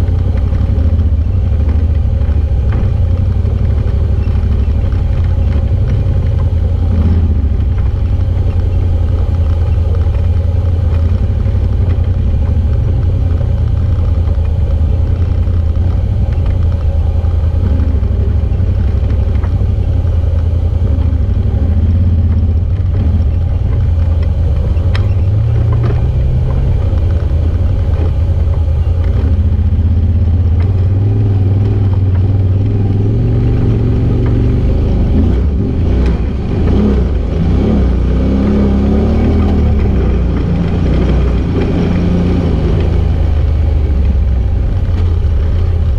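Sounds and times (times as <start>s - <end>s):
utv engine running: 0.0s - 45.9s.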